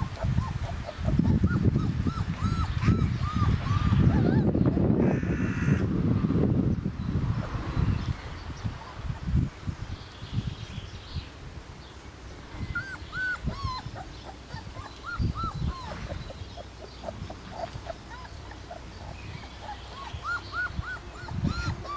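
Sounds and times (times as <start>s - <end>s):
puppies whimpering: 0.0s - 5.0s, 12.5s - 21.9s.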